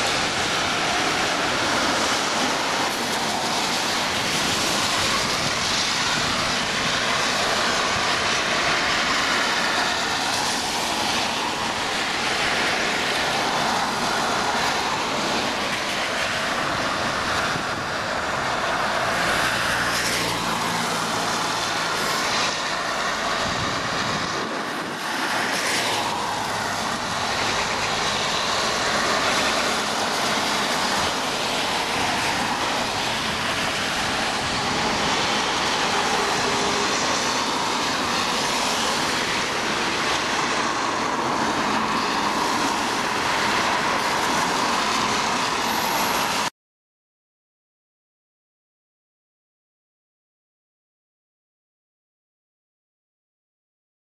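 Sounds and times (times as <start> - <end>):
tyres hissing on wet road: 0.0 - 46.5
engine hum of passing vehicle: 12.0 - 46.4.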